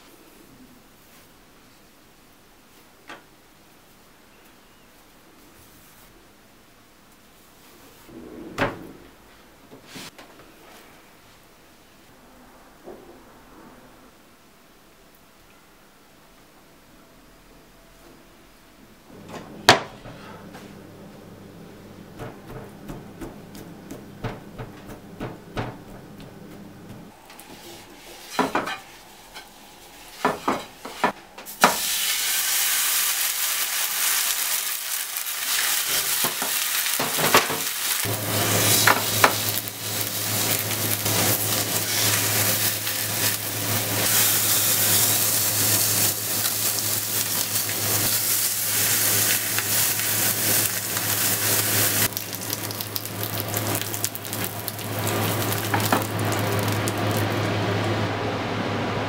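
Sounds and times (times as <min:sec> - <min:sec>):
meat sizzling in oil: 0:31.5 - 0:57.5.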